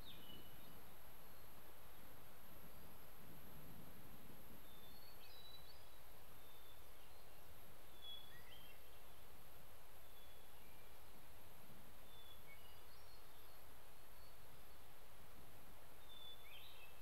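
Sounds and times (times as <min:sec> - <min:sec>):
faint bird chirps: 0:00.0 - 0:03.0, 0:04.6 - 0:09.3, 0:10.0 - 0:11.2, 0:12.0 - 0:14.8, 0:16.0 - 0:17.0
steady low hiss: 0:00.0 - 0:17.0.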